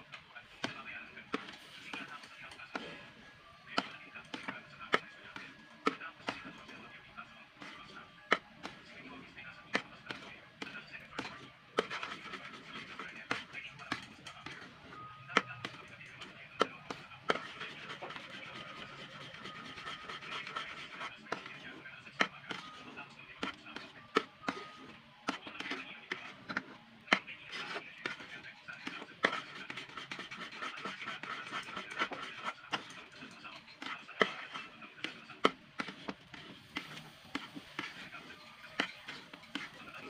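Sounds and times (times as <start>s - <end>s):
utensil scraping metal wok: 0.5s - 6.9s, 7.5s - 40.0s
utensil knocking wok: 27.5s - 40.0s.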